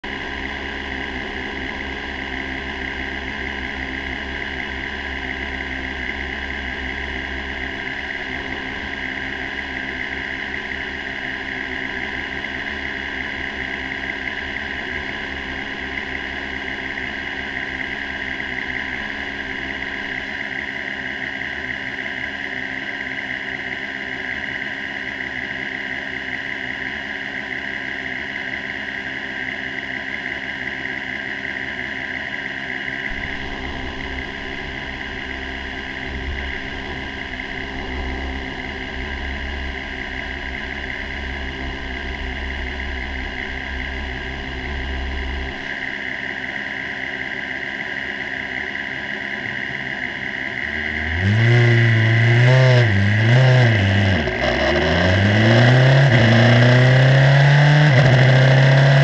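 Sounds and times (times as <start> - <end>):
race car engine idling: 0.0 - 20.5, 33.1 - 46.0.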